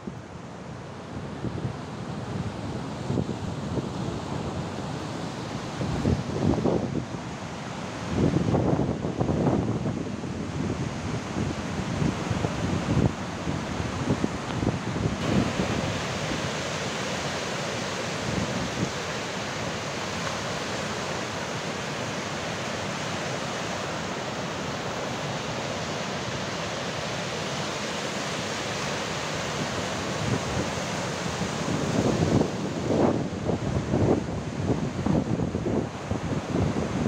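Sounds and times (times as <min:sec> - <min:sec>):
wind buffeting microphone: 0:01.2 - 0:07.4, 0:08.0 - 0:22.6, 0:29.5 - 0:37.0
sea surf breaking: 0:02.4 - 0:37.0.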